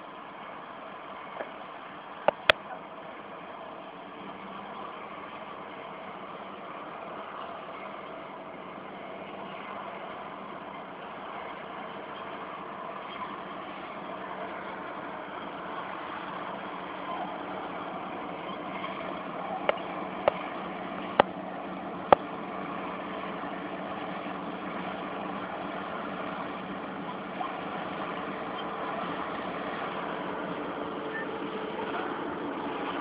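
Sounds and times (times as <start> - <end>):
bulldozer diesel engine running: 0.0 - 33.0
sharp clicks: 2.3 - 2.6.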